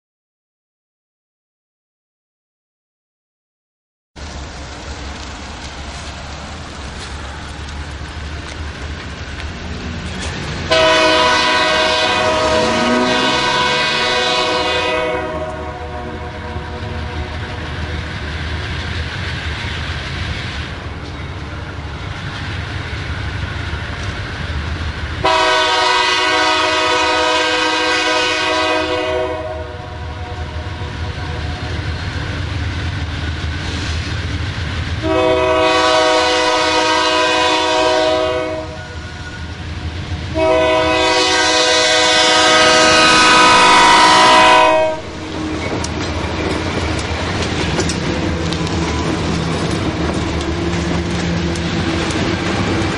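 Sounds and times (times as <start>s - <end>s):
diesel engine rumble: 4.2s - 14.2s
train wheel noise: 4.2s - 52.9s
train air horn blasts: 10.7s - 17.6s, 25.2s - 31.6s, 35.0s - 39.5s, 40.3s - 45.2s.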